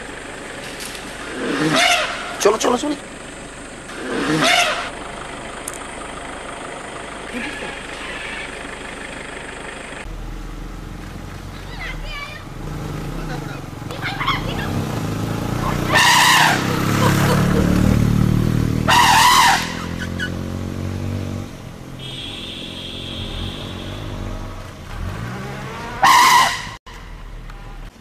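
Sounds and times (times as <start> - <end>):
elephant trumpeting: 1.3 - 2.4, 3.9 - 5.0, 7.4 - 8.7, 14.0 - 17.5, 18.8 - 20.4, 25.8 - 26.8.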